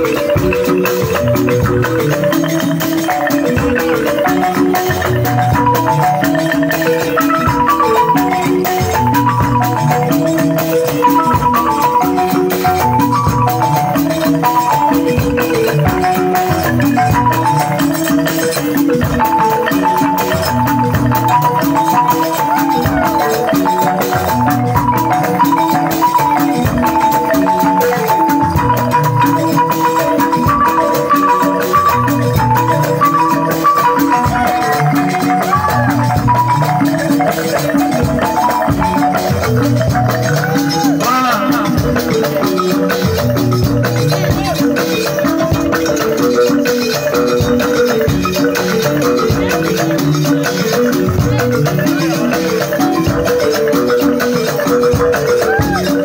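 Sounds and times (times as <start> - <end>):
balafon melody: 0.0 - 56.0.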